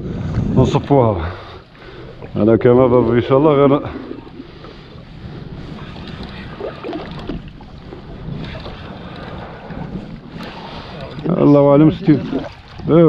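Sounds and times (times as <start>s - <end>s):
wind noise on microphone: 0.0s - 1.2s, 3.8s - 13.0s
water lapping against boat hull: 0.0s - 13.0s.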